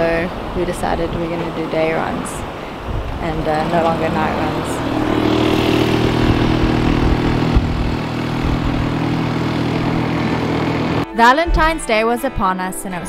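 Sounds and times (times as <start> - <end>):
rushing noise: 0.0 - 11.1
outboard motor running: 1.1 - 11.0.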